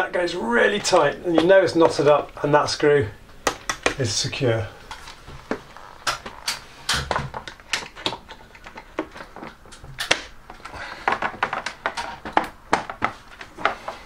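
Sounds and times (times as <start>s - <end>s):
sharp clicks and knocks: 3.3s - 4.0s, 4.9s - 14.0s.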